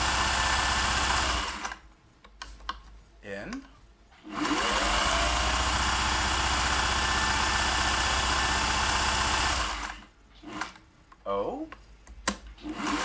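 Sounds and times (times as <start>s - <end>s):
sewing machine stitching: 0.0s - 1.8s, 4.2s - 10.8s, 12.6s - 13.0s.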